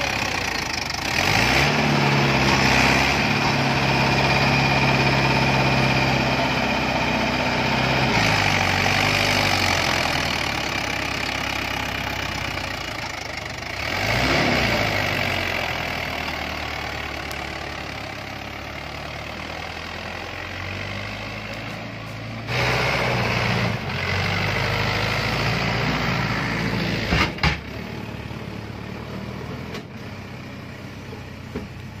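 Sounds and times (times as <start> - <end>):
tractor diesel engine running: 0.0 - 32.0.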